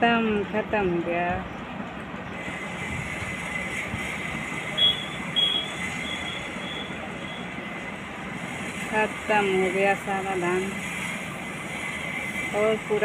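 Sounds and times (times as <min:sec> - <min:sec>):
combine harvester engine running: 0:00.3 - 0:13.0
short high-pitched peeps: 0:04.7 - 0:07.5.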